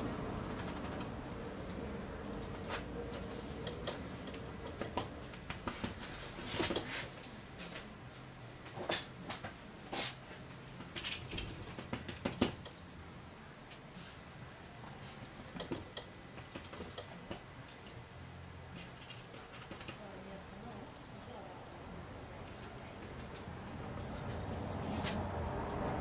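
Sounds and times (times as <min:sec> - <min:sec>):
faint steady hum: 0:00.0 - 0:26.0
brush strokes on canvas: 0:05.8 - 0:07.9, 0:24.0 - 0:25.4.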